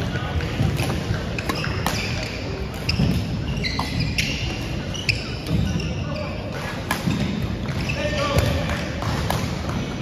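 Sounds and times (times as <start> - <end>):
racket hitting shuttlecock: 0.6 - 4.4, 6.6 - 9.9
sneaker squeaks: 0.9 - 8.7.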